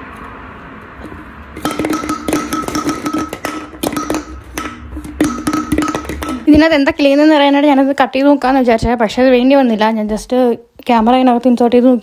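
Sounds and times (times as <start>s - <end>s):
ball rattling inside a can: 1.5s - 6.7s.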